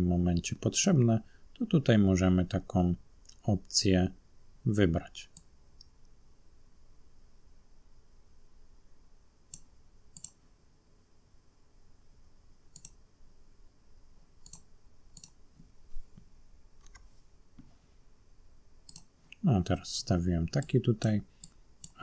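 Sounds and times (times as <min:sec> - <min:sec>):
computer mouse clicking: 0:09.5 - 0:10.4, 0:12.7 - 0:13.0, 0:14.4 - 0:15.4, 0:16.8 - 0:17.1, 0:18.8 - 0:19.4, 0:20.6 - 0:22.0.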